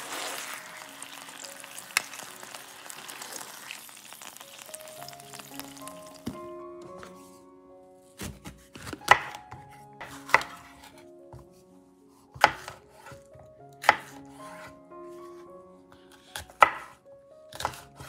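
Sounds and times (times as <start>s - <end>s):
quiet background music: 0.0s - 18.0s
knife chopping on cutting board: 8.2s - 10.9s, 12.4s - 13.2s, 16.2s - 18.0s.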